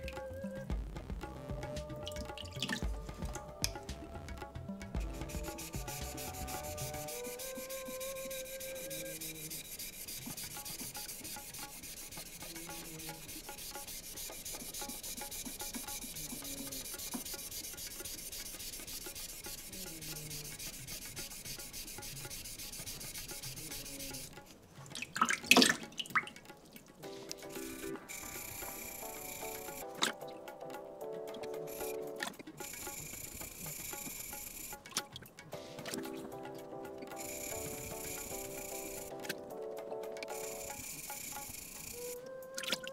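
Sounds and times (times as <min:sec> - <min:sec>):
knife grinding on whetstone: 0:05.3 - 0:24.4.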